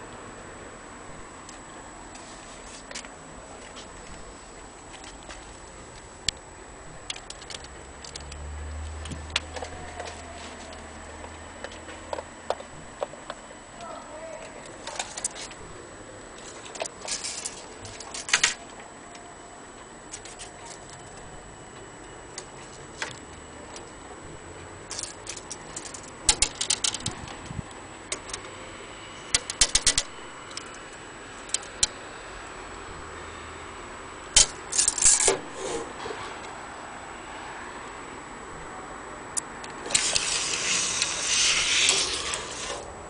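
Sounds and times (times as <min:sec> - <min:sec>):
tape measure rattling and clicking: 0:14.8 - 0:15.6, 0:16.6 - 0:18.6, 0:24.9 - 0:27.4, 0:29.3 - 0:30.8, 0:34.4 - 0:35.8, 0:39.8 - 0:42.9.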